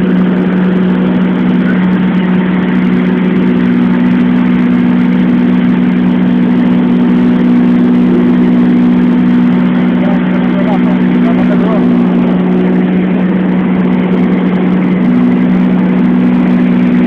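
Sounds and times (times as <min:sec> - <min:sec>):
light aircraft engine drone: 0:00.0 - 0:17.0.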